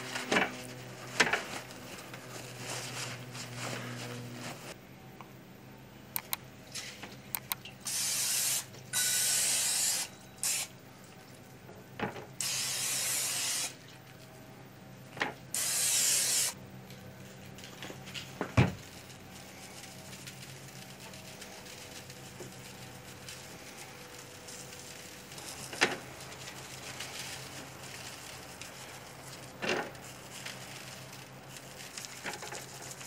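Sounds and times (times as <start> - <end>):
cooking spray hissing: 6.2 - 11.6, 12.3 - 14.0, 15.4 - 16.6, 17.9 - 33.0.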